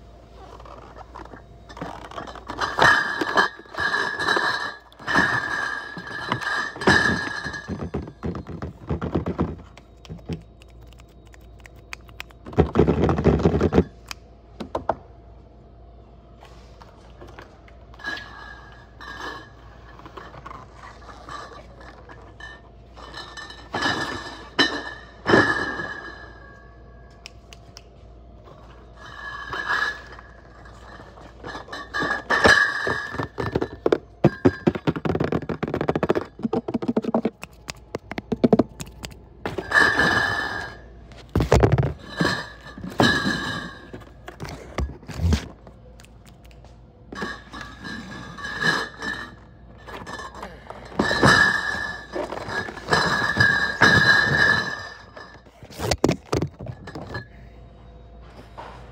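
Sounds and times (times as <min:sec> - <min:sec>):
glass bottles clinking: 0:01.7 - 0:10.6, 0:21.4 - 0:26.4, 0:29.0 - 0:38.8, 0:39.5 - 0:40.8, 0:41.4 - 0:44.1, 0:47.1 - 0:57.4
cardboard cases thunking and scraping: 0:06.0 - 0:10.4, 0:41.2 - 0:42.1.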